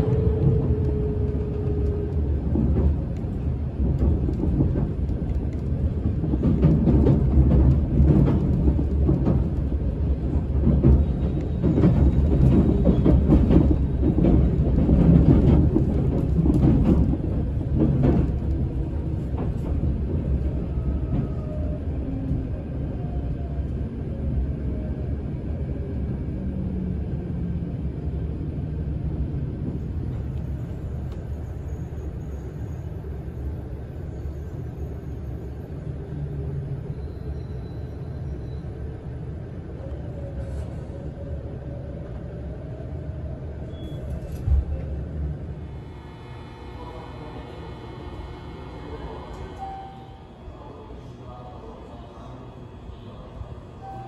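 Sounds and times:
train running rumble: 0.0s - 54.0s
train motor tone: 45.8s - 50.4s.

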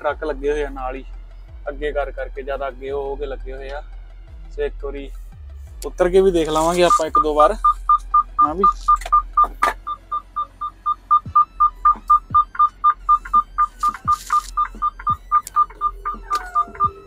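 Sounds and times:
truck reverse warning beeper: 6.6s - 17.0s.

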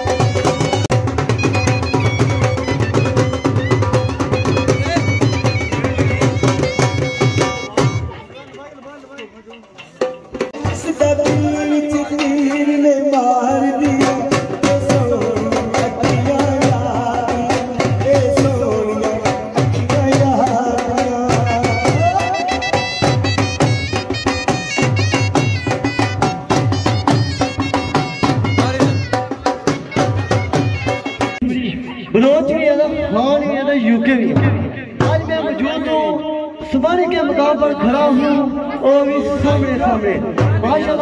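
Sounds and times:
dhol drum beating: 0.0s - 41.0s
man singing into a microphone: 10.6s - 23.4s.

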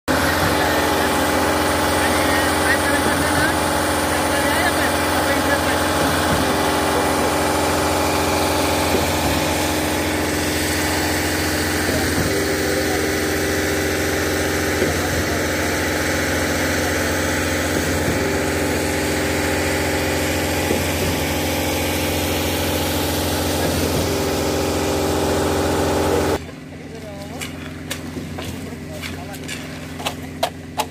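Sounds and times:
diesel engine running under load: 0.1s - 30.9s.

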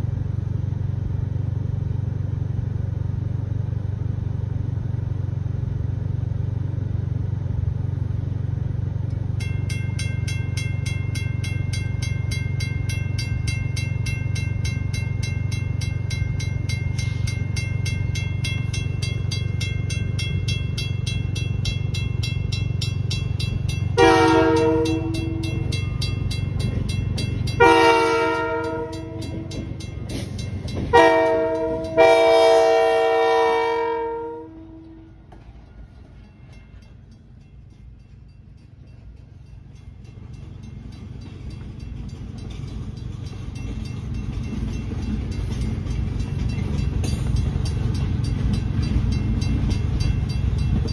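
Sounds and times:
railroad crossing bell ringing: 9.0s - 50.9s
locomotive air horn blasts: 24.0s - 25.7s, 27.6s - 29.8s, 30.9s - 35.2s.

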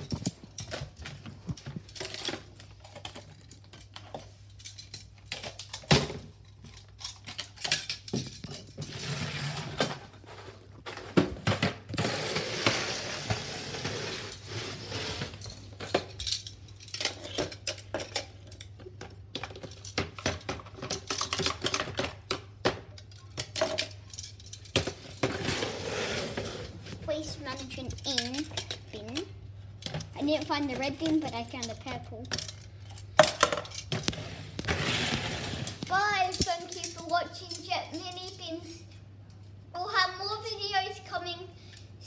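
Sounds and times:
metal tongs clattering on plastic: 0.0s - 9.1s, 15.3s - 25.5s, 27.2s - 38.8s.

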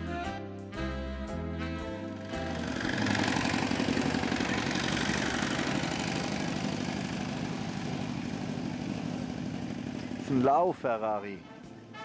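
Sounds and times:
truck engine chugging: 2.2s - 12.0s.

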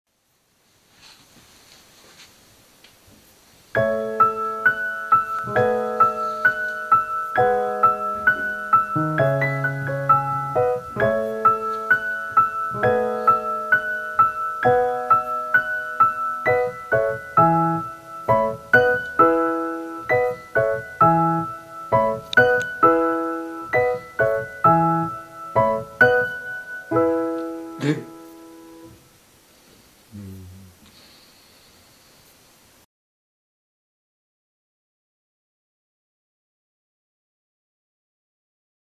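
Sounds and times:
light keyboard tune: 3.8s - 29.0s.

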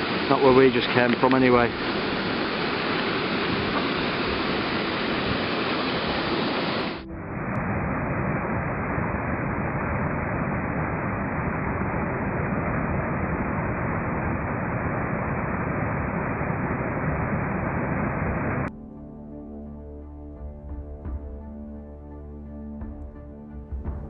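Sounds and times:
small waterfall rushing: 0.0s - 7.0s.

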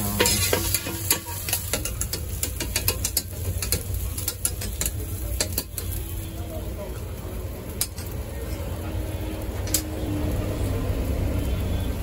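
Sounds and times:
spatula scraping on griddle: 0.0s - 6.0s
sausage sizzling: 0.0s - 12.0s.

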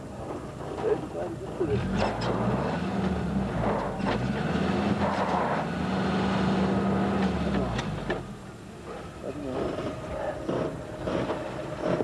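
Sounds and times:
engine revving: 1.7s - 8.3s, 9.6s - 12.0s
wheels spinning in sand: 8.8s - 12.0s.

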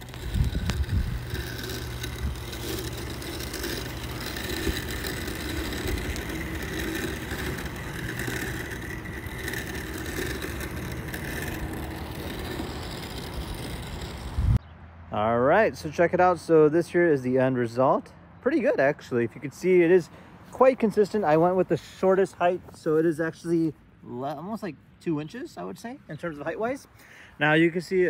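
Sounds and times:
robot lawn mower motor hum: 0.0s - 14.6s.

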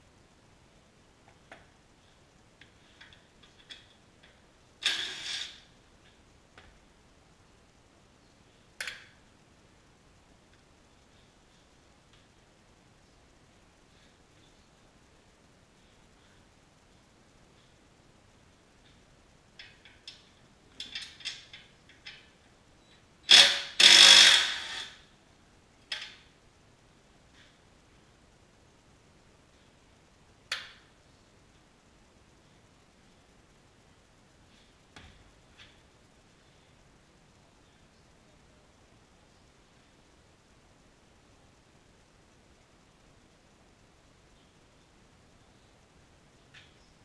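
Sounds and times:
tools and parts clicking: 19.6s - 22.4s.

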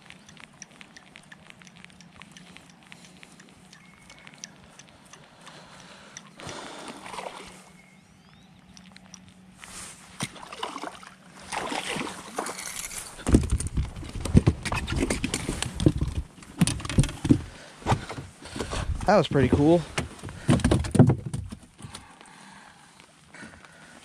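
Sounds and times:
water splashing: 5.6s - 7.7s, 10.0s - 13.3s.

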